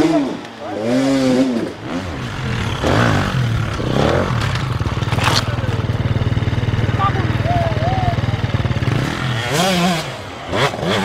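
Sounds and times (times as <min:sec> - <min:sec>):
dirt bike engine: 0:00.0 - 0:11.0
scraping on rocks: 0:03.6 - 0:05.8
sharp clatter of bike falling: 0:03.7 - 0:05.6.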